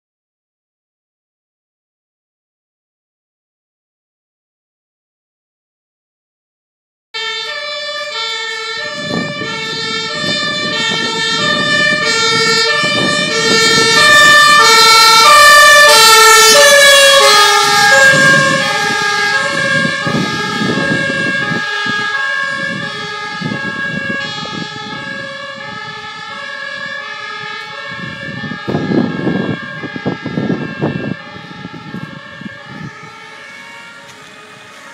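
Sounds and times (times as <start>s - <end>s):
road noise: 7.2s - 34.9s
two-tone ambulance siren: 7.2s - 34.9s.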